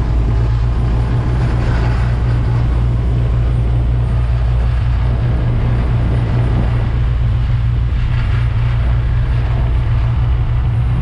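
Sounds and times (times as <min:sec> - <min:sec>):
rushing noise: 0:00.0 - 0:11.0
vehicle engine droning: 0:00.0 - 0:11.0.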